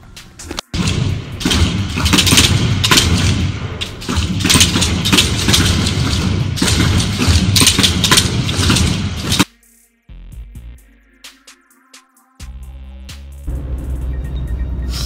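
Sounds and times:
simulated rifle shots: 0.7s - 9.5s.

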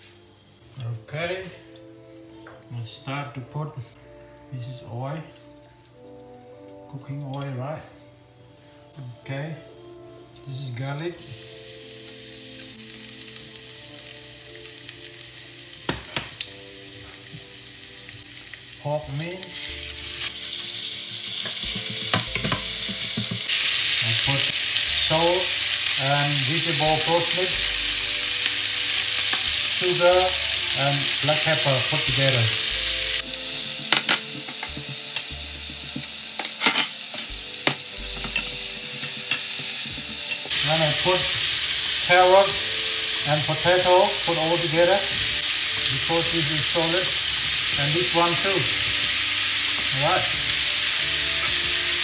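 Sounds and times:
garlic sizzling in oil: 10.6s - 52.0s.

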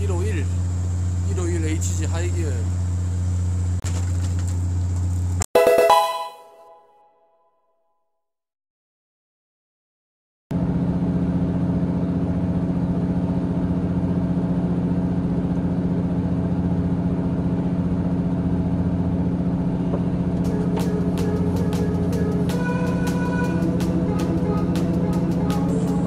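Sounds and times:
boat engine humming: 0.0s - 3.8s, 17.8s - 26.0s.

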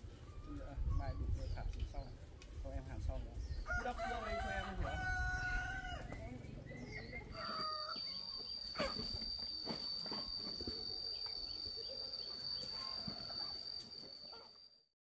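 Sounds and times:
insect droning: 3.4s - 14.9s.

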